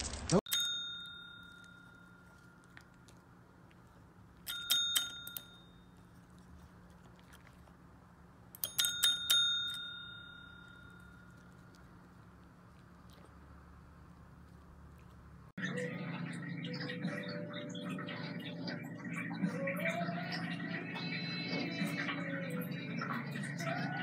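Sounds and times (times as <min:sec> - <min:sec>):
small metal bell ringing: 0:00.5 - 0:03.0, 0:04.4 - 0:06.0, 0:08.6 - 0:11.5.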